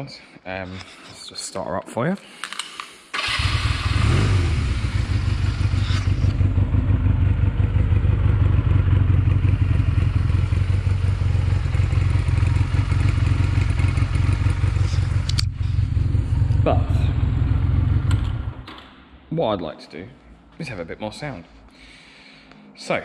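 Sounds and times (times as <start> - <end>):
motorcycle engine idling: 3.6 - 18.6.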